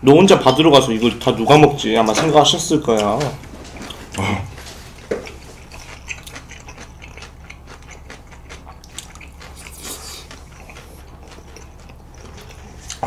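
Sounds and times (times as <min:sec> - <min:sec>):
wet chewing of noodles: 0:03.0 - 0:13.0.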